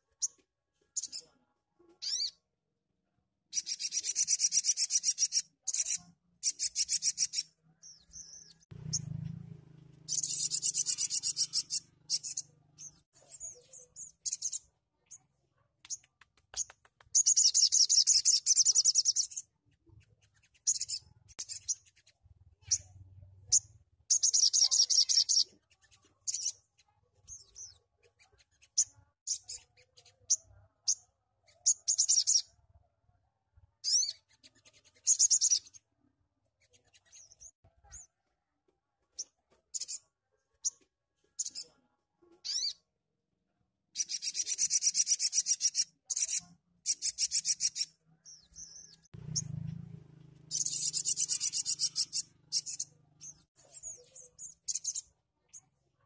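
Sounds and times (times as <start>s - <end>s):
bird singing buzzy trills: 10.0s - 13.0s, 50.5s - 53.4s.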